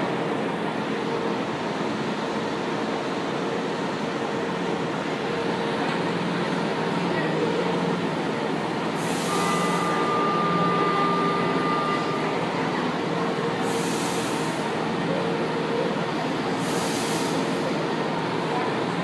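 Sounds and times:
train rumbling through station: 0:00.0 - 0:19.0
brief hisses: 0:13.7 - 0:14.7, 0:16.6 - 0:17.6.

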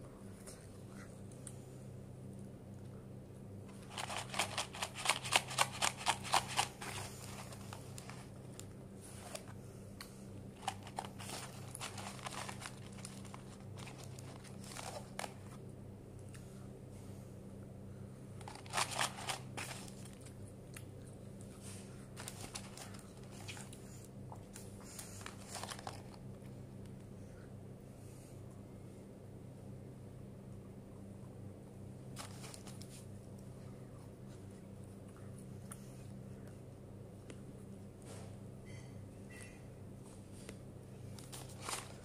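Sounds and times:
low steady hum: 0:00.0 - 0:42.0
cardboard carton crinkling: 0:03.8 - 0:08.4, 0:10.6 - 0:15.6, 0:18.4 - 0:20.3, 0:22.2 - 0:23.5, 0:25.2 - 0:26.2, 0:41.2 - 0:42.0.

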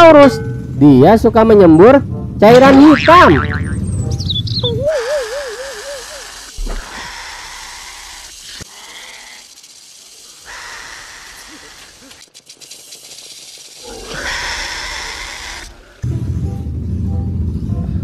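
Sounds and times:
creature rattling hiss: 0:05.0 - 0:16.0.

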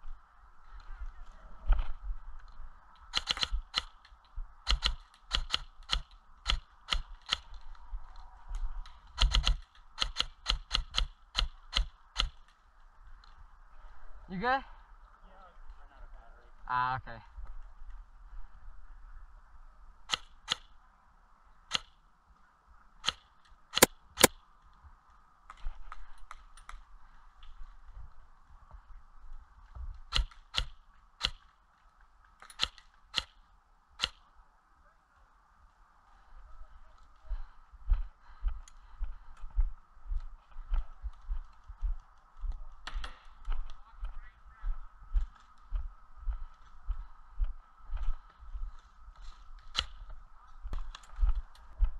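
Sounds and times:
footsteps on dry grass: 0:36.2 - 0:51.9.

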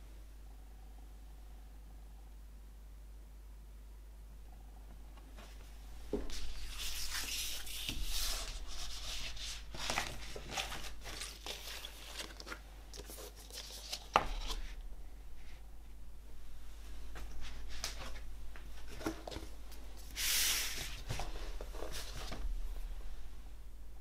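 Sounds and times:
vinyl record rustling in sleeve: 0:05.2 - 0:15.6, 0:16.6 - 0:22.9.

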